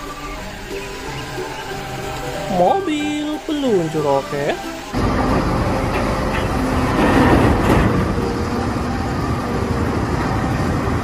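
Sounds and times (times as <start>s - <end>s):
heavy vehicle engine rumble: 4.8s - 11.0s.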